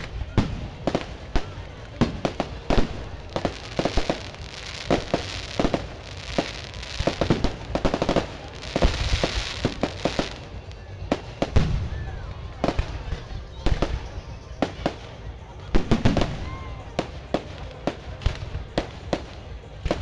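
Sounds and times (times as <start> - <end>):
fireworks bangs: 0.0 - 15.0
fireworks hiss: 2.2 - 10.6.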